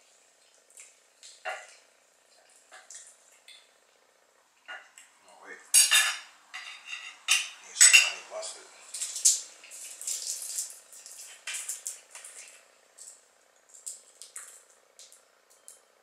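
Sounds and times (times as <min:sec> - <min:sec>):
knife and fork clinking on plate: 0:05.8 - 0:08.2.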